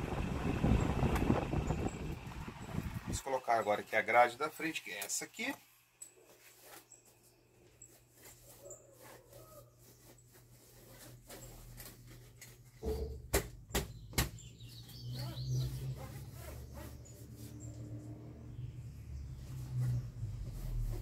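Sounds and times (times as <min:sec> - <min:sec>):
plastic fan grille rustling: 0:00.1 - 0:13.2.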